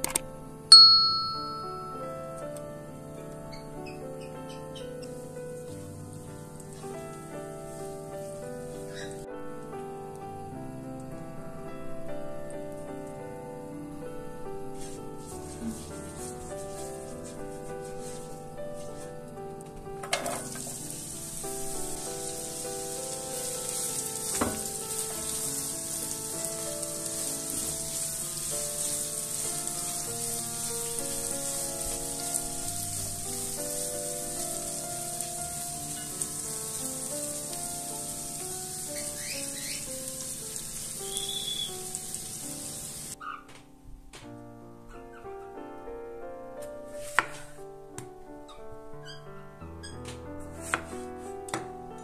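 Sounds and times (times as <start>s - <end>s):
onion sizzling in a pan: 0.7s - 2.1s, 4.8s - 9.2s, 14.8s - 19.1s, 20.3s - 43.2s.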